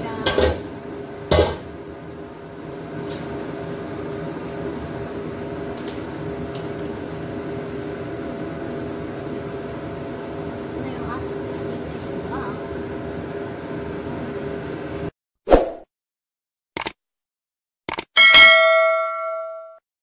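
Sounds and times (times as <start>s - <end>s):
appliance hum: 0.0s - 15.1s.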